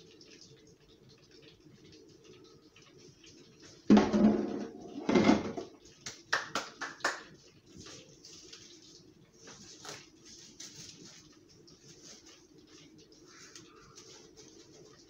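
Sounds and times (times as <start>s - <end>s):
heavy knocks of dishes: 3.9s - 5.7s.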